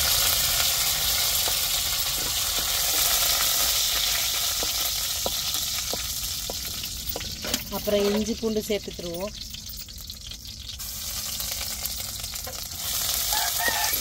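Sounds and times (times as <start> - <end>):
leaves and seeds sizzling in oil: 0.0 - 14.0
wooden spatula scraping and tapping: 1.4 - 3.6, 4.2 - 8.4.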